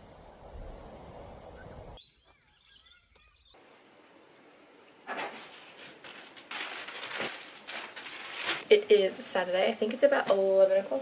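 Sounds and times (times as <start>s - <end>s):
outdoor background noise: 0.0s - 11.0s
birds chirping: 1.2s - 3.6s
bag rustling: 5.2s - 8.8s.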